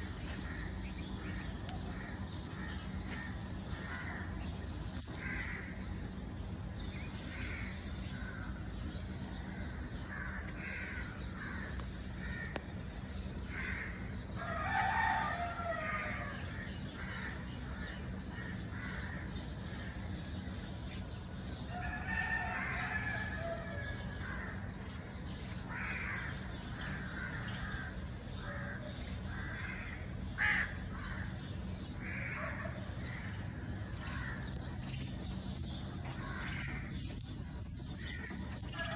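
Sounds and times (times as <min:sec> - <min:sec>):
low steady hum: 0:00.0 - 0:38.9
crow cawing: 0:00.4 - 0:04.4, 0:05.1 - 0:05.8, 0:07.4 - 0:08.5, 0:09.6 - 0:12.6, 0:13.5 - 0:19.9, 0:25.7 - 0:31.4, 0:32.0 - 0:34.5, 0:36.0 - 0:37.0
rooster crowing: 0:14.4 - 0:16.3.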